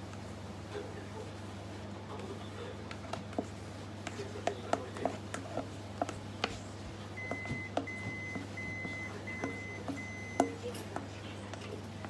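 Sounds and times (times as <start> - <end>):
kitchen appliance beeps: 7.2 - 10.6.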